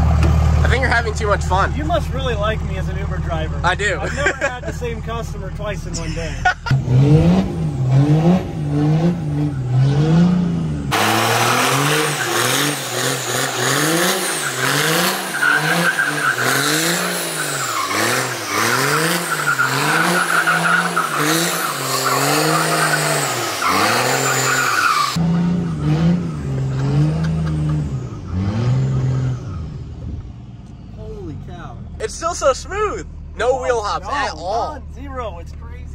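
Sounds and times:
pickup engine revving: 0.0 - 35.2
tyres squealing on concrete: 13.7 - 25.2.

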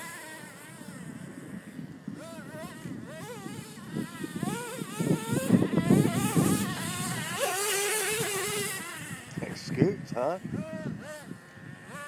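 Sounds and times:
toy truck motor whining: 0.0 - 9.8, 10.6 - 12.0.

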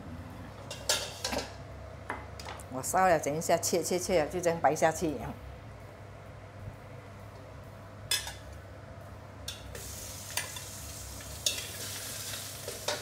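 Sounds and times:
meat sizzling in a wok: 9.6 - 13.0.

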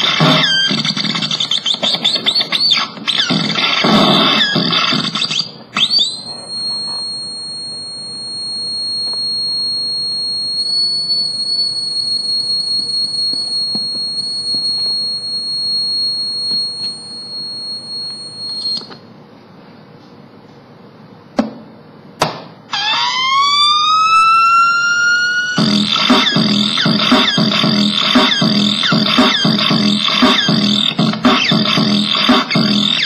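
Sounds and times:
glitchy electronic noise: 0.0 - 6.0, 25.5 - 33.0
high-pitched electronic whistle: 0.0 - 18.9, 22.7 - 33.0.

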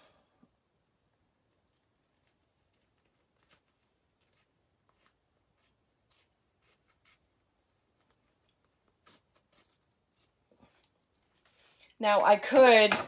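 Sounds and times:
scissors snipping paper: 8.9 - 10.4.

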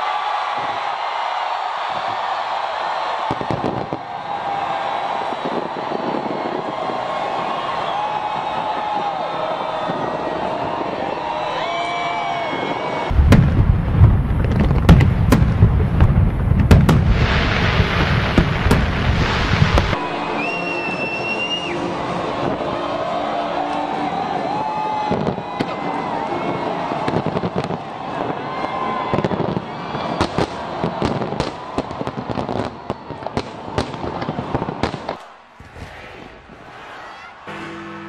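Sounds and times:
firework bangs: 3.3 - 4.6, 13.1 - 20.0, 27.0 - 36.8.

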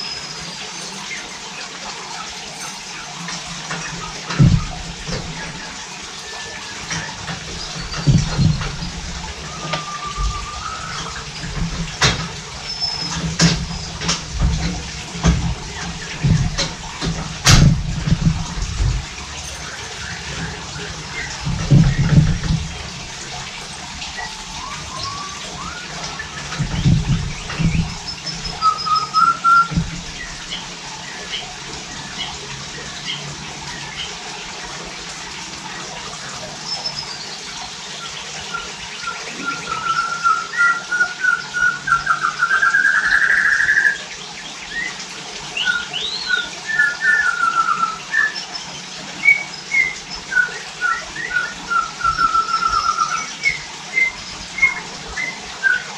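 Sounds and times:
birds singing whistled trills: 0.0 - 1.6, 4.3 - 14.5, 15.8 - 32.4, 36.4 - 55.9
low thumps: 3.8 - 5.6, 6.9 - 28.7, 29.7 - 30.5.

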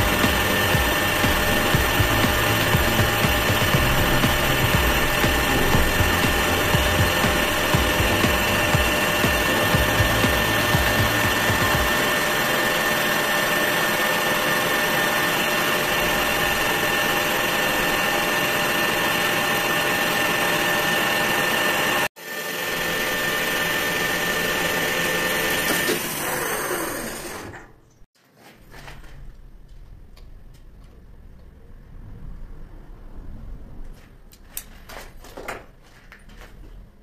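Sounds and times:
metal lathe whining: 0.0 - 27.7.

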